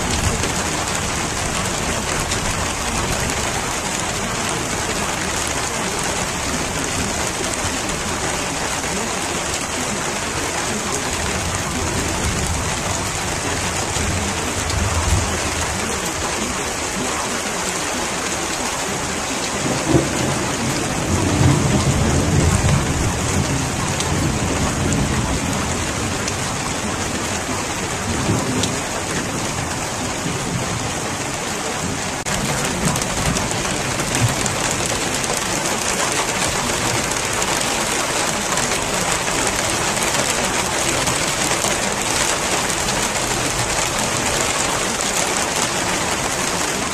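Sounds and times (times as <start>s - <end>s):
rain falling: 0.0s - 46.9s
thunder rolling: 19.6s - 27.0s.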